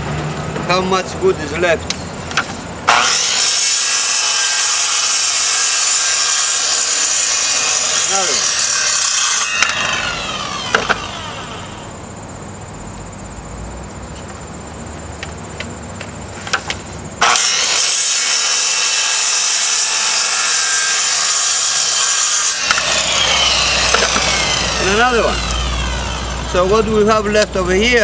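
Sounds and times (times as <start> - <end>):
circular saw running: 2.9 - 11.9, 17.2 - 27.4
saw motor winding down: 2.9 - 11.9, 17.2 - 27.2.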